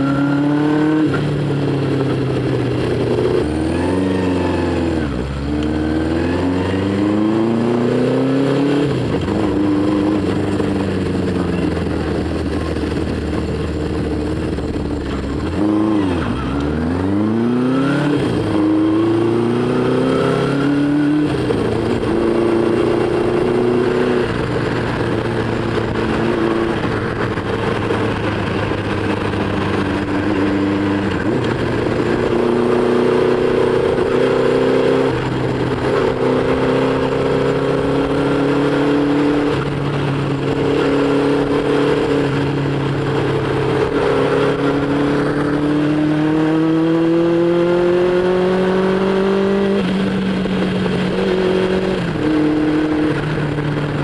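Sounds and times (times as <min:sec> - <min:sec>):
motorcycle engine revving: 0:00.0 - 0:54.0
wind noise on microphone: 0:00.0 - 0:54.0.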